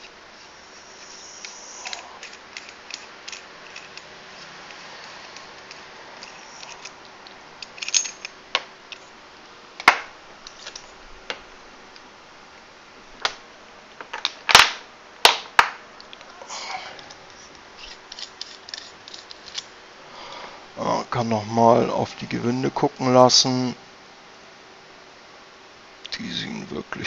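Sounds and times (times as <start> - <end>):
metal parts clicking and knocking: 1.4 - 9.1, 17.8 - 19.7.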